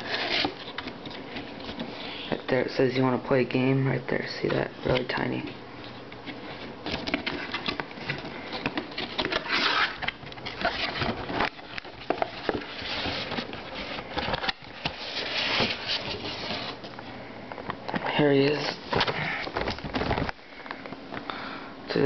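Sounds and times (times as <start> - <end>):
packaging rustling and scraping: 0.0 - 2.4, 4.8 - 17.1, 18.4 - 20.4.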